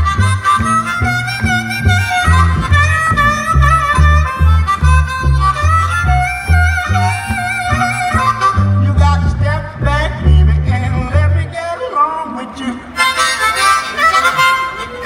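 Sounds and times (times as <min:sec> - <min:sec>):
blues harmonica: 0:00.0 - 0:11.6, 0:12.9 - 0:15.0
plucked upright bass: 0:00.0 - 0:11.7.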